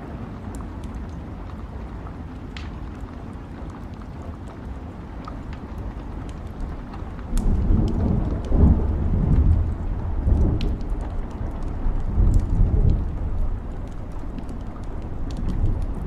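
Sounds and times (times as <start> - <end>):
steady rain: 0.0 - 16.0
wood fire crackling: 0.2 - 16.0
thunder rumbling: 6.4 - 16.0.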